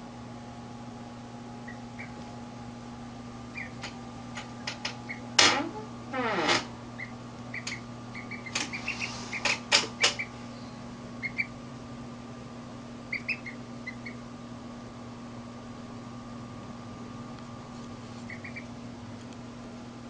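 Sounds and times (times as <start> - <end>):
steady low hum: 0.0 - 20.0
duckling peeping: 1.6 - 2.3, 3.4 - 5.4, 7.0 - 11.6, 13.0 - 14.3, 18.1 - 18.8.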